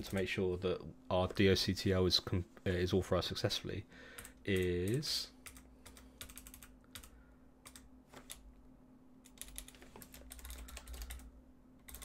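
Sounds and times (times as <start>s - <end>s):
typing on computer keyboard: 5.4s - 8.4s, 9.3s - 12.0s.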